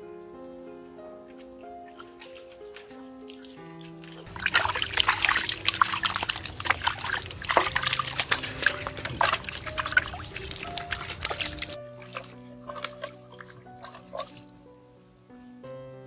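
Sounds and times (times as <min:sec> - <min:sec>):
water splashing on hands: 0:01.8 - 0:14.6.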